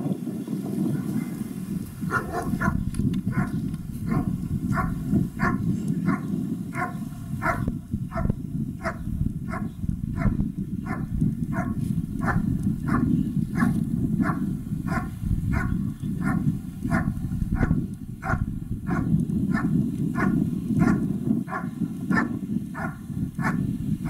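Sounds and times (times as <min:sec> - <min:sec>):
dog barking: 0:02.1 - 0:23.6.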